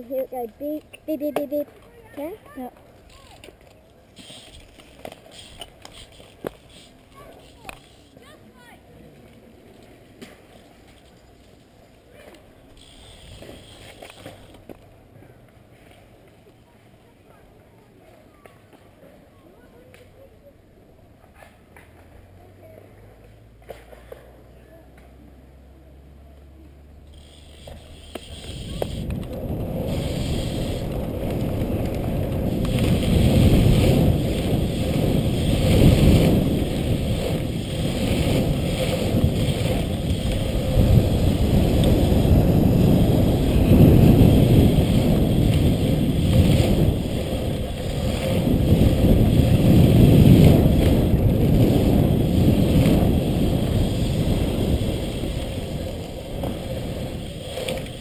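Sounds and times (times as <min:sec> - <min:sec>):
tyres rolling on pavement: 0:00.0 - 0:58.0
wind rushing over microphone: 0:28.3 - 0:58.0.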